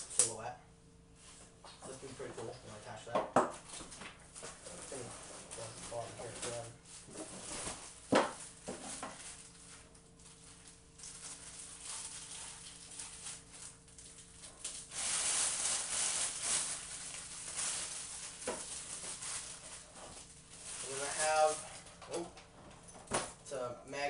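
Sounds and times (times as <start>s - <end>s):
plastic packaging crinkling: 4.3s - 22.2s.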